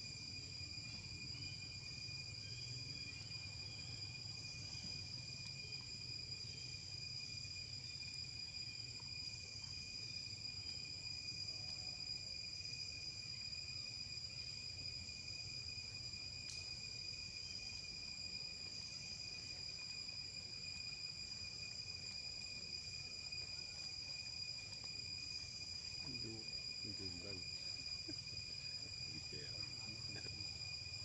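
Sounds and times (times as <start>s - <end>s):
insects trilling: 0.0s - 31.0s.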